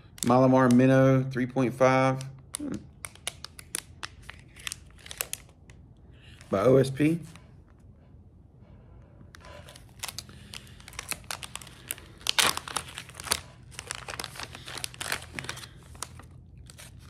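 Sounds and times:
plastic packaging crinkling: 2.1s - 6.6s, 9.4s - 17.0s.

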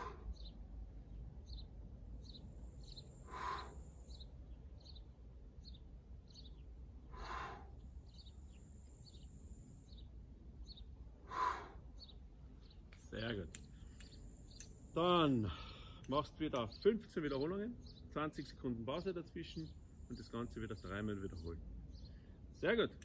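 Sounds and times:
birds chirping: 0.0s - 23.0s
man breathing out hard: 3.2s - 3.8s, 7.1s - 7.8s, 11.2s - 11.9s, 15.4s - 16.0s.

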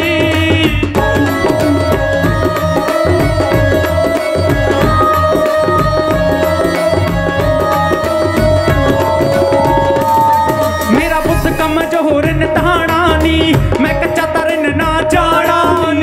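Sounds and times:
tabla fast rhythm: 0.0s - 16.0s
held melodic instrument tones: 1.0s - 12.7s.

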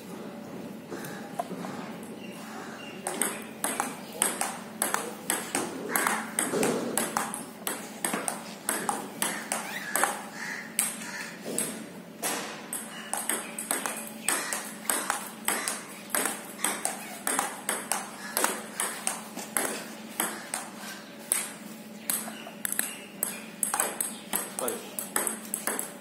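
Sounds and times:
table tennis ball clicking: 3.0s - 10.2s, 12.7s - 20.7s, 22.1s - 26.0s.

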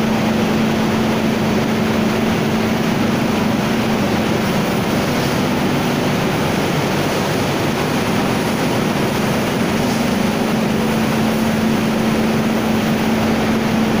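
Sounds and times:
mill machinery running: 0.0s - 14.0s.

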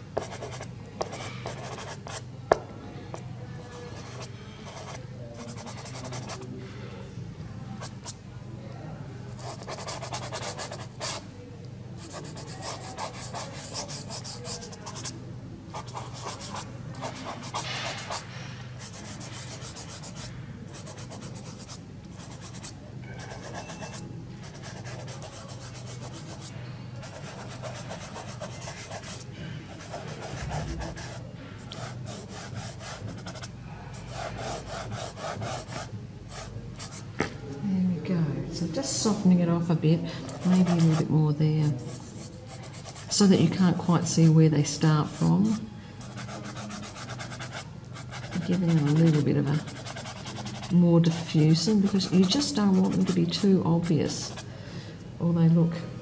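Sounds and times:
pastel scratching on paper: 3.9s - 6.4s, 9.4s - 11.2s, 12.0s - 15.1s, 18.8s - 29.2s, 29.8s - 35.9s, 40.4s - 41.1s, 46.0s - 53.4s.

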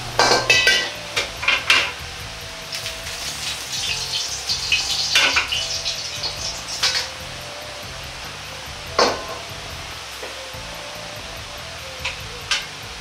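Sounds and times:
oil sizzling: 0.0s - 13.0s
ladle clinking on wok: 0.1s - 2.0s.

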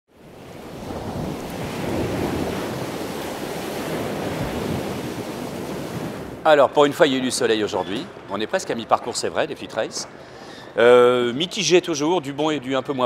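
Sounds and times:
waves: 0.1s - 11.8s
wind: 0.1s - 13.0s
wind buffeting microphone: 0.2s - 6.4s.

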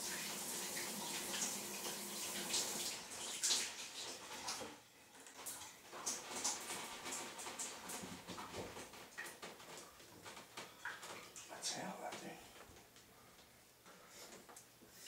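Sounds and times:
shower water spraying: 0.0s - 9.4s.

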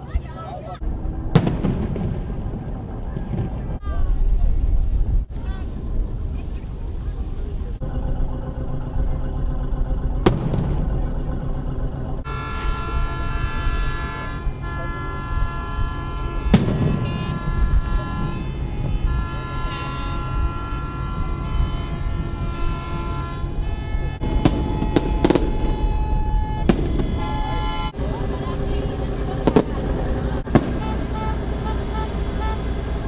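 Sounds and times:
long steady tones: 0.0s - 33.0s
low engine rumble: 0.0s - 33.0s
firework rockets bursting: 1.1s - 4.5s, 10.0s - 11.4s, 16.5s - 18.4s, 22.4s - 27.9s, 29.3s - 31.6s.

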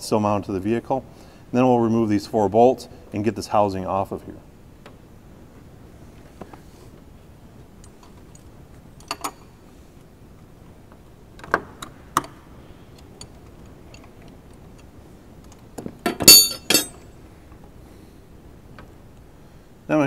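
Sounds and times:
ringing metal clinks: 16.1s - 17.0s.

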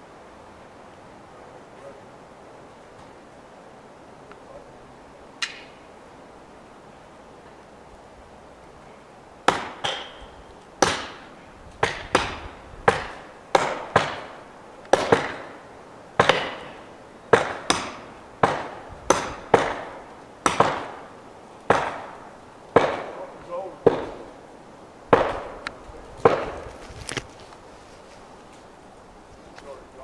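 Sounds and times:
ringing strikes on wedges: 9.5s - 10.3s.

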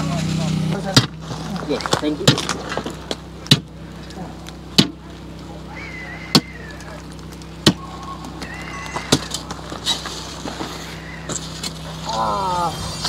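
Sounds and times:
steady low hum: 0.0s - 13.0s
iron bar striking sulfur: 3.4s - 3.8s, 4.7s - 5.0s.

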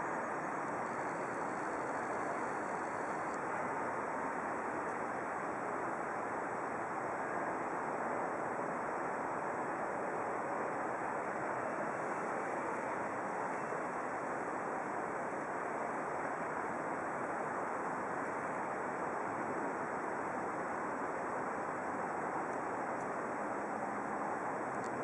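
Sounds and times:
faint steady high tone: 0.0s - 3.7s, 11.5s - 14.2s.

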